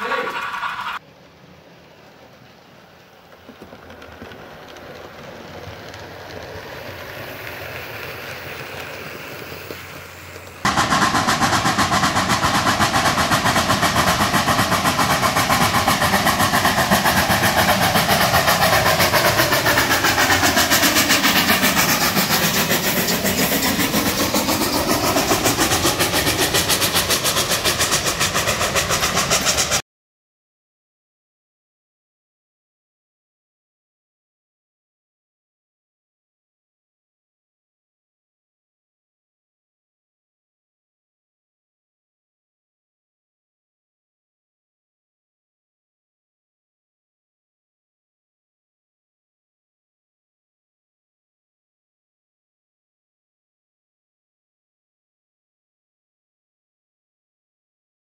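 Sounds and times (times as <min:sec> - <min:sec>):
model train running: 0:00.0 - 0:29.8
steam train clattering past: 0:02.4 - 0:29.8.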